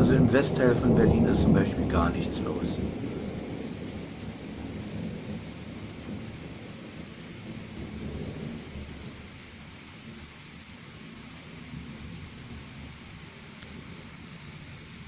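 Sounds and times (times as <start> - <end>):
distant thunder rumbling: 0.0 - 10.3
steady hiss: 0.0 - 15.0.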